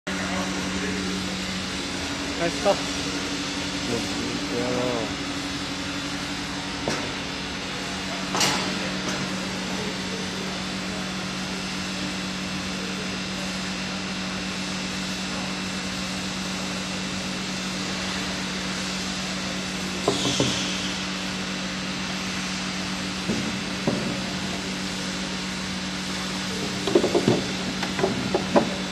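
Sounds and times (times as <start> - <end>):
machine hum: 0.1 - 8.2.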